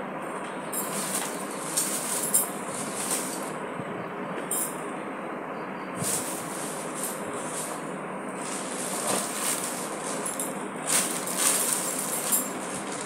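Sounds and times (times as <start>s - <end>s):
steady background hiss: 0.0s - 13.0s
plastic packaging crinkling: 0.9s - 3.5s, 8.4s - 13.0s.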